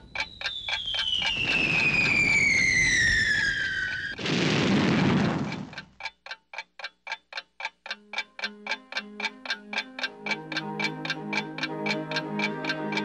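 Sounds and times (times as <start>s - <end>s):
falling bomb whistle: 0.0s - 4.2s
clock ticking: 0.0s - 13.0s
explosion boom: 1.1s - 5.8s
low music notes: 8.1s - 13.0s.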